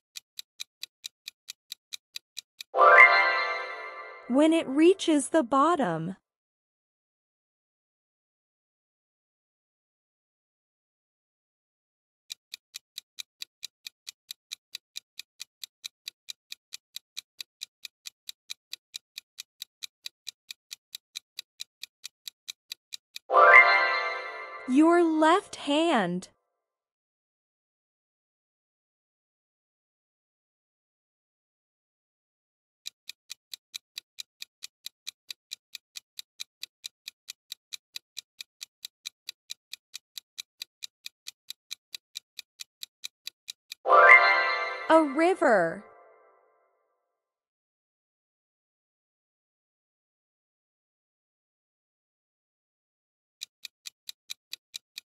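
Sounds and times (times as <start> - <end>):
fast clock ticking: 0.1 - 2.7, 12.3 - 23.3, 32.8 - 44.2, 53.4 - 55.0.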